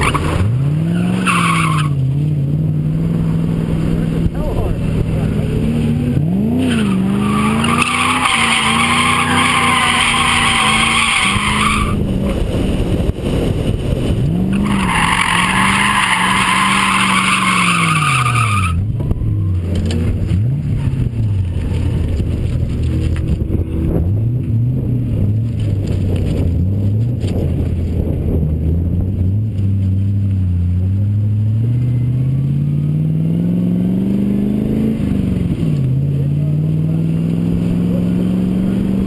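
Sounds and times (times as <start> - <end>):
car engine revving: 0.0 - 39.0
tyres squealing: 6.6 - 12.0, 14.5 - 18.8.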